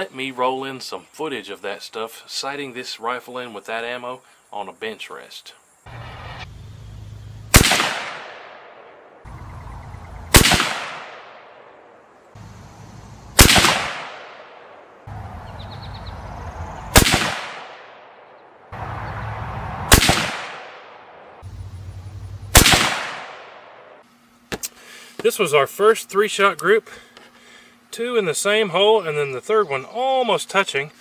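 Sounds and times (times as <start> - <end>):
rifle shots with echo: 7.5 - 9.3, 10.3 - 11.9, 13.4 - 14.9, 16.9 - 21.4, 22.5 - 24.0.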